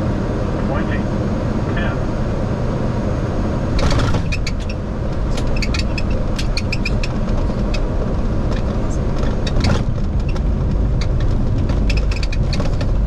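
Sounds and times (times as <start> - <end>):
low rumble of wheels and engines: 0.0 - 13.0
sharp clicks and rattles: 3.8 - 13.0.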